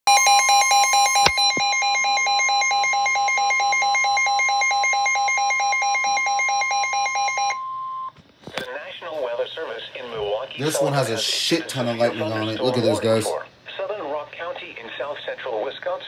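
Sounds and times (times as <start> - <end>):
alternating two-pitch alarm tone: 0.1 - 8.1.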